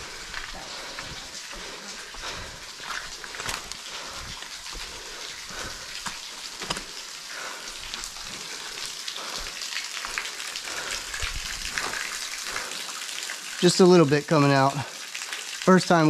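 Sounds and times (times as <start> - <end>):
water trickling and dripping: 0.0 - 16.0
footsteps on loose rocks: 2.8 - 5.0, 5.6 - 7.0.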